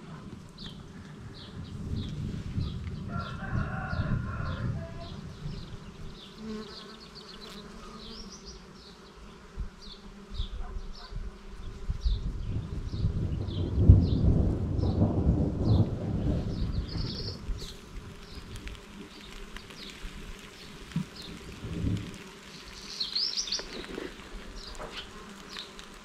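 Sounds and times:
wind rumbling on microphone: 0:00.0 - 0:06.2, 0:09.6 - 0:26.0
small bird chirping: 0:22.8 - 0:23.9.

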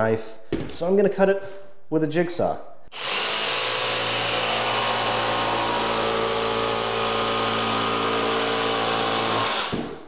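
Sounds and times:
jigsaw cutting vinyl plank: 0:03.0 - 0:10.0.

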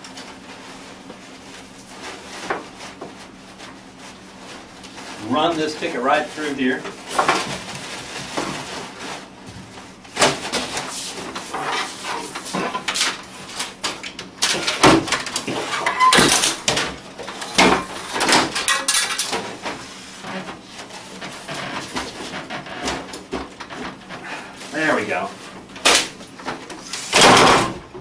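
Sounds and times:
paper towel rustling and crinkling: 0:00.1 - 0:14.0, 0:19.3 - 0:27.0.

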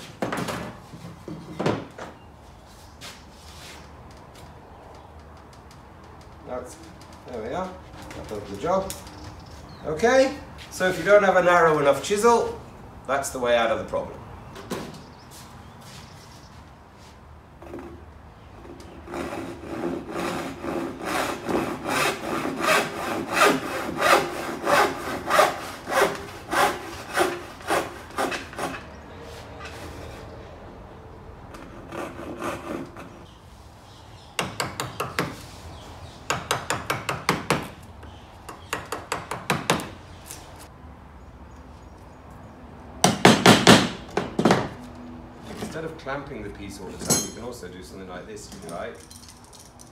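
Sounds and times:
handsaw cutting wood: 0:19.0 - 0:28.8, 0:31.6 - 0:33.3.

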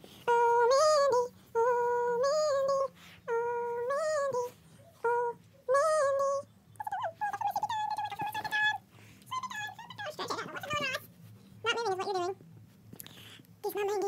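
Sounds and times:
person humming a slow tune: 0:00.2 - 0:09.8
wavering high-pitched vocal sound: 0:00.2 - 0:11.0.

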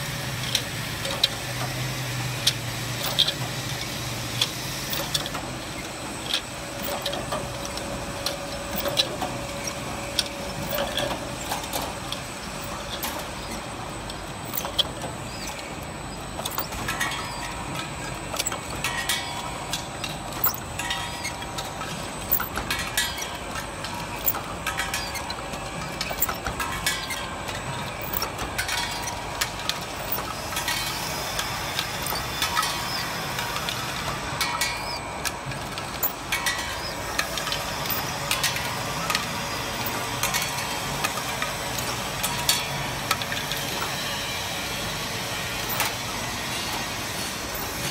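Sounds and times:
tube filling machine running: 0:00.0 - 0:47.9
metallic clicks and knocks: 0:06.2 - 0:15.7, 0:16.3 - 0:33.0, 0:34.4 - 0:39.2, 0:45.7 - 0:46.0.

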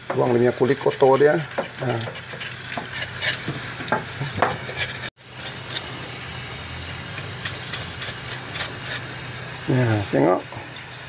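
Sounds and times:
knife scraping skin: 0:00.8 - 0:03.8, 0:04.6 - 0:05.9, 0:07.2 - 0:09.1.

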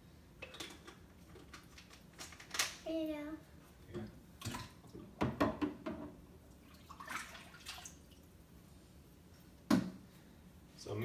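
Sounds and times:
liquid splashing in plastic bucket: 0:06.6 - 0:08.2.

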